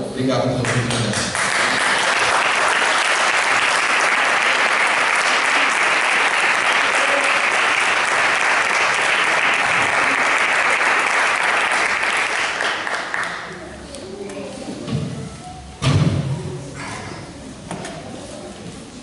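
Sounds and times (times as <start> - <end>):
crowd applauding: 0.6 - 13.6.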